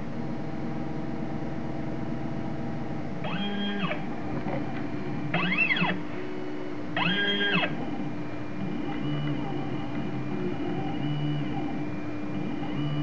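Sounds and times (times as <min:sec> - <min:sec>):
steady hum: 0:00.0 - 0:13.0
stepper motors whining: 0:03.2 - 0:13.0.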